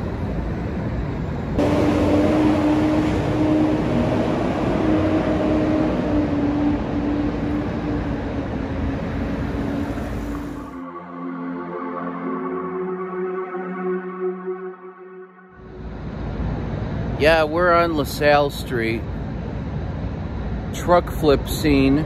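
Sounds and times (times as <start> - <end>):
engine hum: 0.0 - 10.8, 15.6 - 22.0
road noise rumble: 0.0 - 10.8, 15.6 - 22.0.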